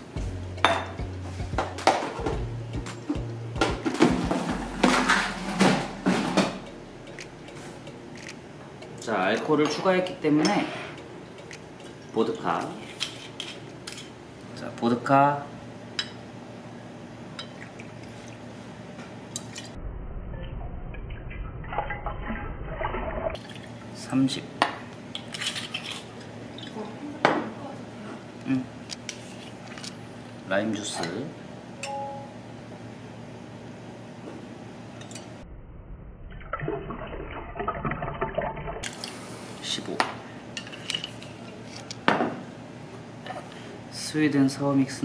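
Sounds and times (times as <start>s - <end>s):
liquid pouring and splashing: 20.4s - 24.0s, 36.3s - 39.0s.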